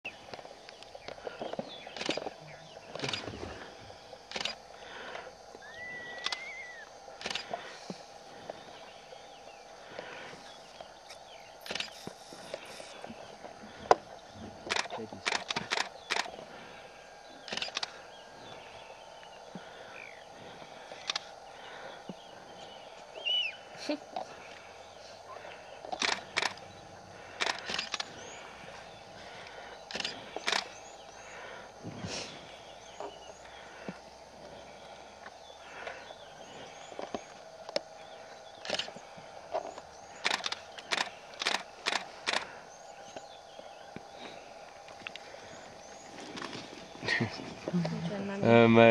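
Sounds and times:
faint steady hum: 0.1 - 48.9
low background noise: 0.1 - 48.9
faint bird chirps: 5.5 - 48.9
faint high bird chirps: 5.6 - 7.4, 22.7 - 24.0.

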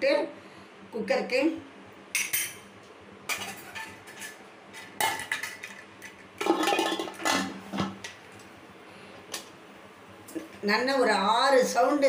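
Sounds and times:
metal lid clanking and scraping: 3.3 - 7.9.

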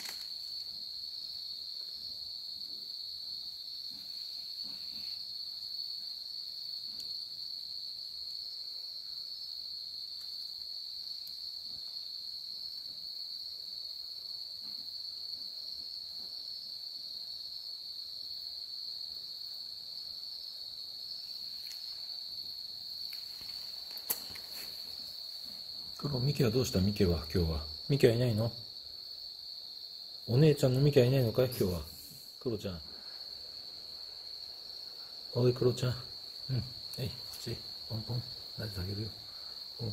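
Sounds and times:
high-pitched insect chorus: 0.0 - 39.9
faint soft scuffs: 23.1 - 25.7.

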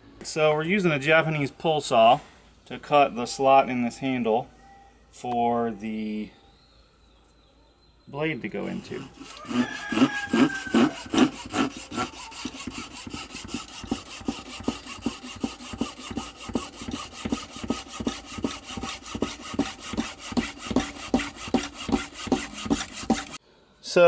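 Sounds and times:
hand saw cutting wood: 8.6 - 23.4.

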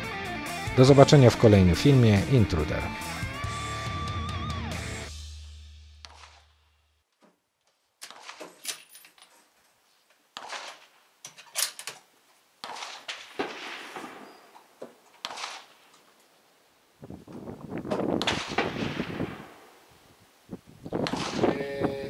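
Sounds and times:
rifle shots echoing: 12.6 - 14.5, 18.2 - 19.7, 21.0 - 21.6.

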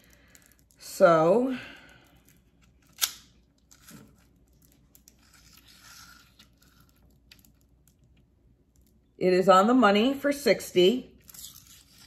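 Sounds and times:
plastic wrap crinkling: 2.2 - 9.0, 11.2 - 12.0.

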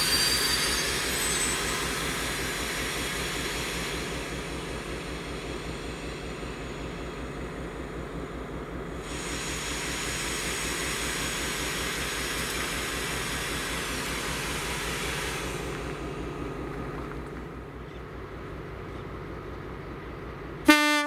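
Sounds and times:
diesel locomotive engine throbbing: 0.0 - 21.0
loud hiss with high whine: 9.0 - 15.8.

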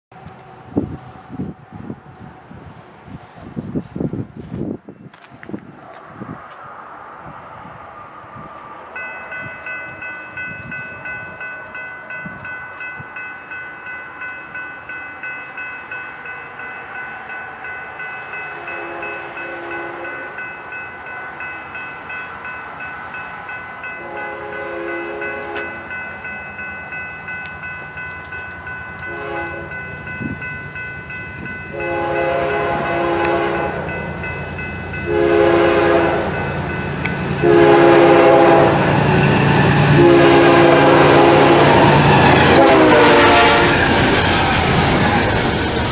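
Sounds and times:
train rumble: 0.1 - 45.9
crossing warning bell ringing: 8.8 - 45.9
locomotive air horn blasts: 18.5 - 20.3, 24.0 - 25.8, 29.0 - 29.8, 31.7 - 33.9, 35.0 - 36.5, 37.4 - 39.0, 39.8 - 43.9.

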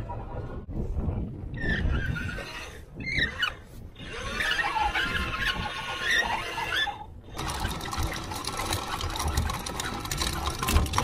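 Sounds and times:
anchor chain rattling: 7.2 - 11.0.

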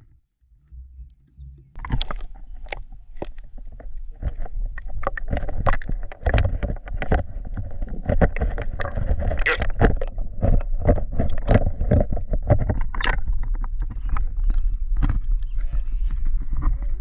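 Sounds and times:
muffled underwater rumble: 0.0 - 17.0.

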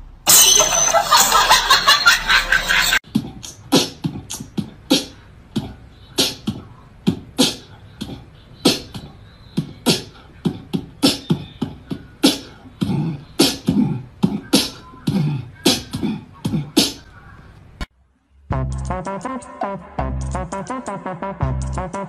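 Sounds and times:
beatbox percussion beat: 3.0 - 17.1, 18.5 - 22.0.

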